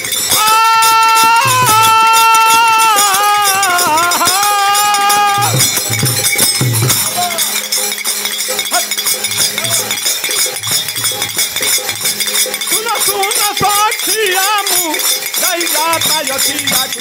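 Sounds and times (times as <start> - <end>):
clappers jingling and clacking: 0.0 - 17.0
man singing held note: 0.6 - 5.6.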